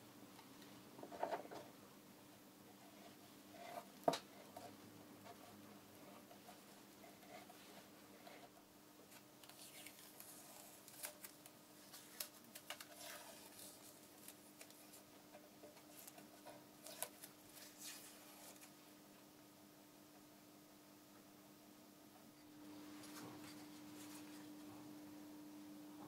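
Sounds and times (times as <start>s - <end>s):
faint steady hum: 0.0s - 26.0s
paper rustling: 9.1s - 15.0s, 15.7s - 18.7s.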